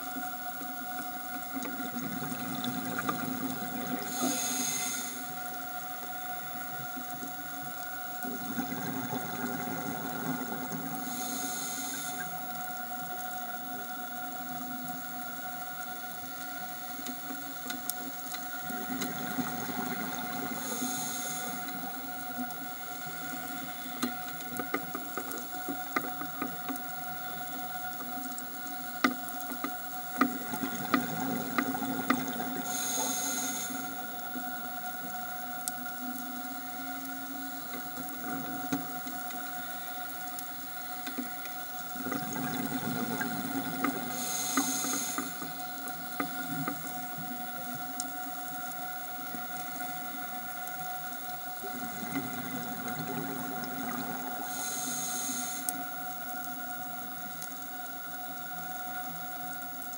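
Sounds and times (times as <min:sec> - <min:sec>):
faint steady whine: 0:00.0 - 0:59.9
reef clicks and crackles: 0:00.0 - 0:59.9
regulator inhalation hiss: 0:03.7 - 0:07.4, 0:10.8 - 0:13.7, 0:19.7 - 0:25.7, 0:32.2 - 0:35.2, 0:43.6 - 0:47.0, 0:53.4 - 0:58.2.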